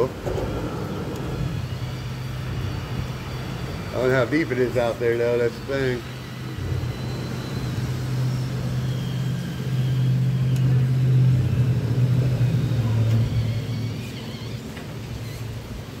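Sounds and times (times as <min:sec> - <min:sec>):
vehicle engine passing by: 0:06.5 - 0:15.4.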